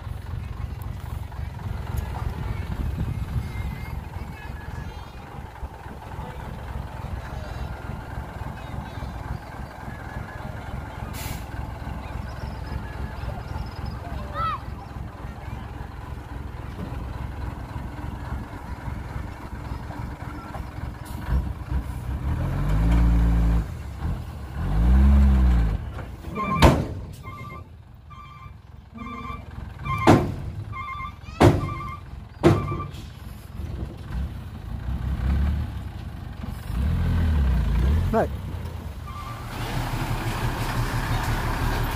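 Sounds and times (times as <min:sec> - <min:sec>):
diesel truck engine revving: 0:00.0 - 0:41.9
reversing alarm beeping: 0:26.4 - 0:33.0.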